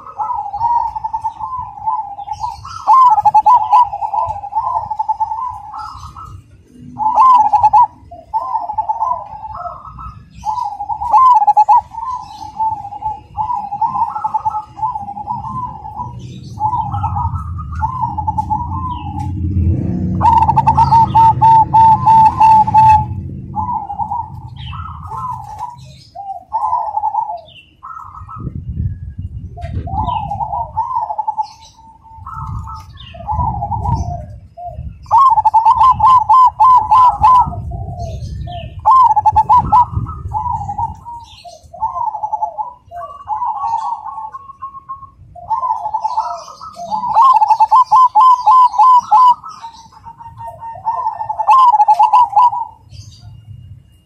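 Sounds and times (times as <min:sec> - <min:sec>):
dove cooing: 0:00.0 - 0:53.4
low rumble: 0:14.7 - 0:25.9.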